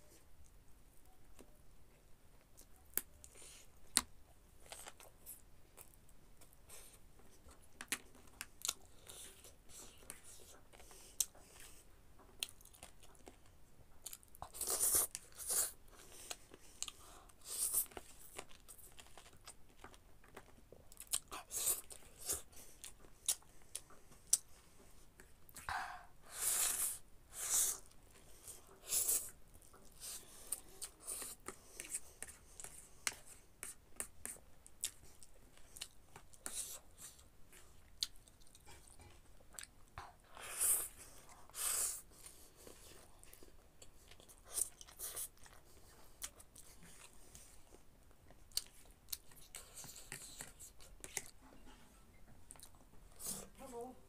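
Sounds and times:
wet chewing: 27.7 - 51.4.

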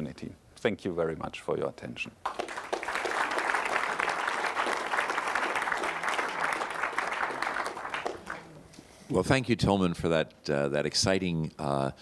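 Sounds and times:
audience applauding: 2.2 - 8.7.

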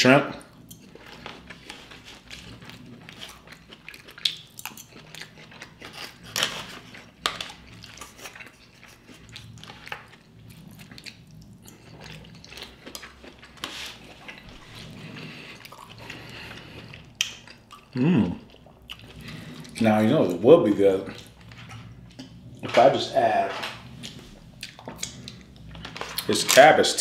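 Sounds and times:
chewing: 0.3 - 27.0.

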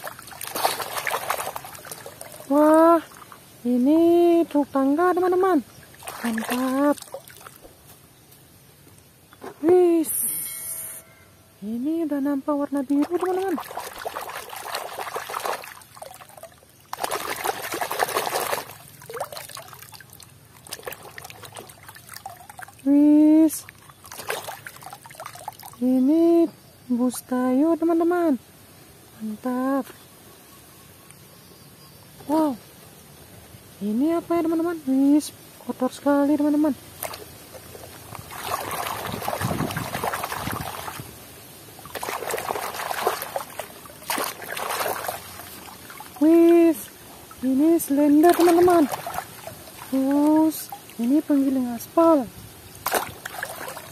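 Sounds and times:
water sloshing in plastic basin: 0.0 - 3.5, 5.8 - 7.8, 12.8 - 22.9, 23.6 - 25.8, 36.9 - 41.2, 41.8 - 53.9.

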